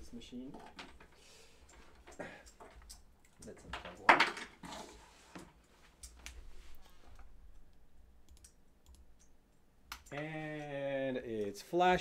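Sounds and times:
hardware clicking: 0.4 - 4.5.

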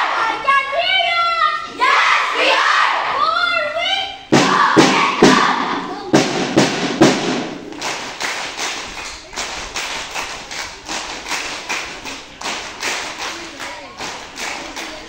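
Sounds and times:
group voices: 0.0 - 0.8, 1.4 - 3.8
children clapping a rhythm: 4.4 - 15.0.

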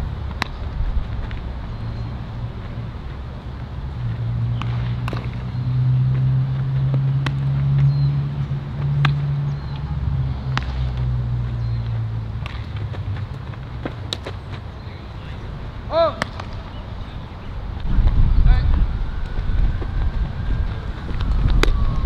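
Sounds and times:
low engine hum: 0.0 - 22.0
baseballs smacking into gloves: 0.3 - 1.5, 4.4 - 14.7, 15.9 - 16.8.

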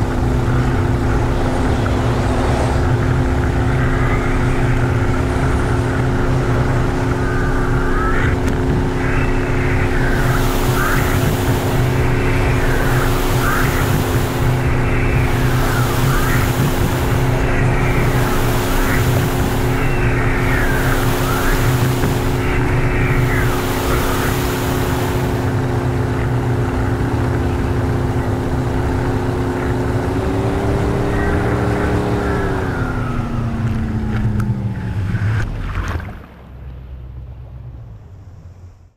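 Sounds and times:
wind and water rushing: 0.0 - 27.1
boat engine droning: 0.0 - 38.9
water ski spray hissing: 9.2 - 25.6.

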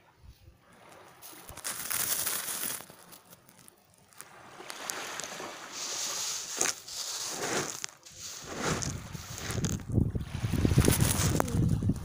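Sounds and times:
small waves washing on gravel beach: 0.7 - 12.0
gravel shifting crackle: 1.0 - 12.0.

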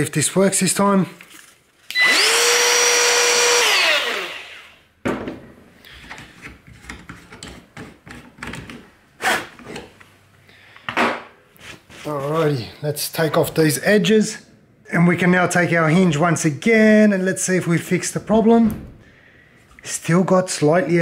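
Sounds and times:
trim router running: 1.9 - 4.8.

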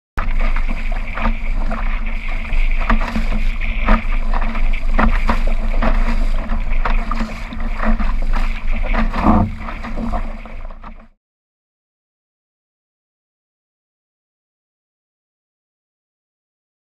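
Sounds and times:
wind buffeting microphone: 0.2 - 10.7
waves slapping against hull: 0.2 - 11.2.

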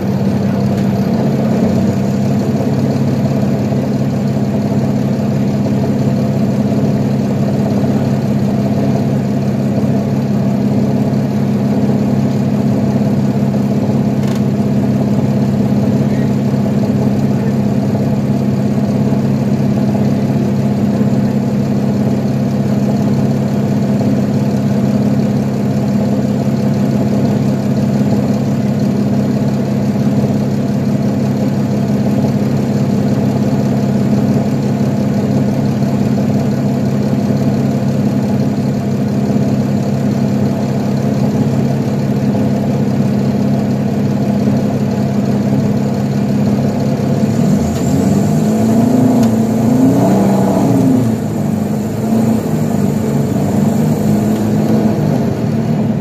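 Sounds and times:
bus diesel engine idling: 0.0 - 56.0.

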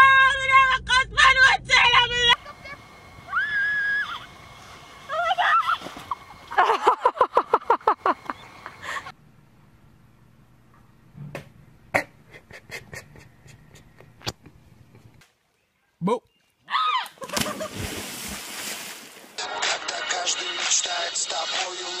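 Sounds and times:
faint low hum: 0.0 - 16.0
person crying out: 5.1 - 5.8
person laughing: 6.5 - 9.1, 12.0 - 14.5, 17.2 - 17.8.

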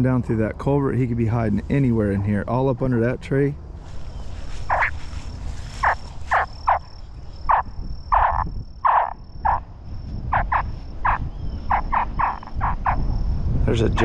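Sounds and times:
low wind rumble on microphone: 0.0 - 14.0.

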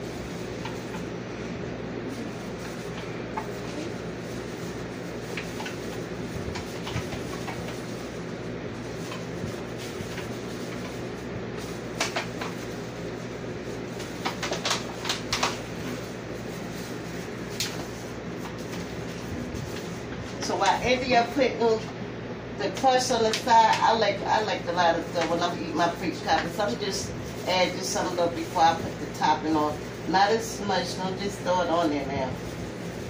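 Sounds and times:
low room hum: 0.0 - 33.0.

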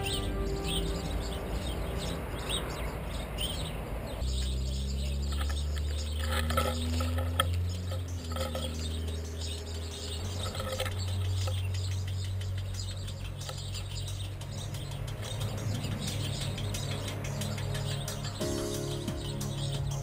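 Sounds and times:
bird chirps: 0.0 - 20.0
squirrel crunching and scrabbling: 4.3 - 18.3.

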